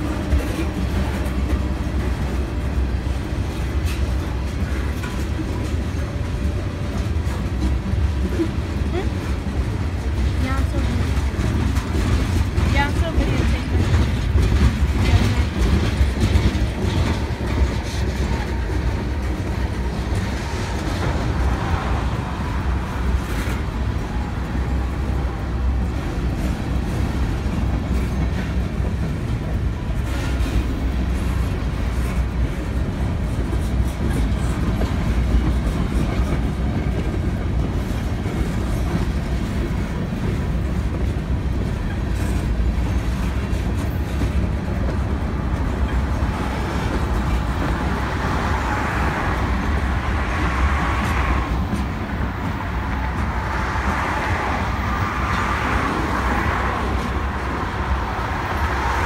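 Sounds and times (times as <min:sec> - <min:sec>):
wheel clacks: 0:00.0 - 0:21.8
freight train rumbling past: 0:00.0 - 0:59.0.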